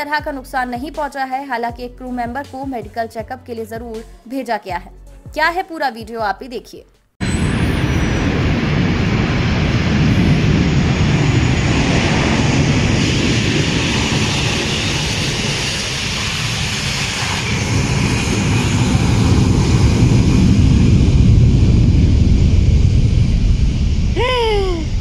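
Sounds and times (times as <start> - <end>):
jet engines rumbling: 7.2 - 25.0.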